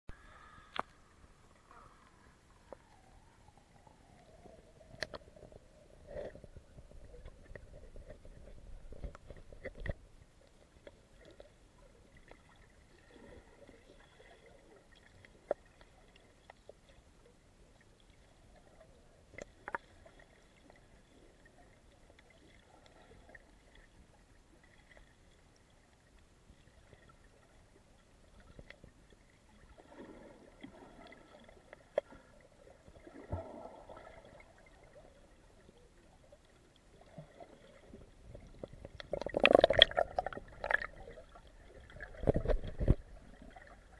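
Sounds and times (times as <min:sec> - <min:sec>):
muffled underwater water movement: 0:00.1 - 0:43.9.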